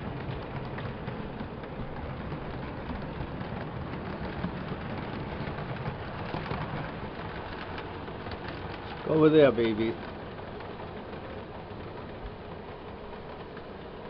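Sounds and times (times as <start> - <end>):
model train wheels rumbling on rail: 0.0 - 14.0.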